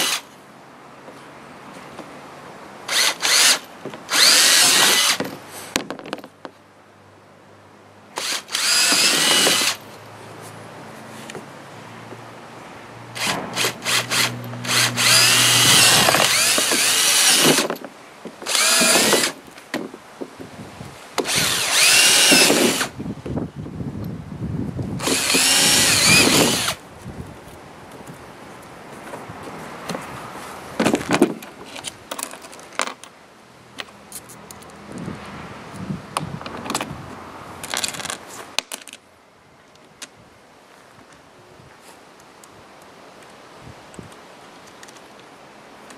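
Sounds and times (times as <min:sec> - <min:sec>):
cordless drill boring plastic: 0:02.9 - 0:05.2, 0:08.2 - 0:09.8, 0:13.2 - 0:17.7, 0:18.5 - 0:19.4, 0:21.2 - 0:22.9, 0:25.0 - 0:26.8.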